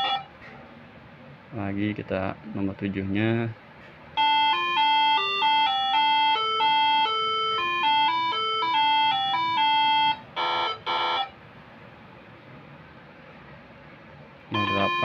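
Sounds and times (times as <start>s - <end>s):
electronic horn melody: 0.0s - 0.3s, 4.2s - 11.4s, 14.5s - 15.0s.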